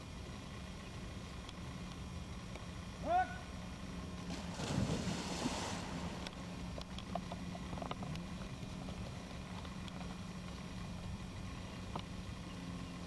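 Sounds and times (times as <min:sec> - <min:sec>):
dog splashing into pond: 0:04.3 - 0:06.2
small splashes of dog swimming: 0:04.3 - 0:06.2.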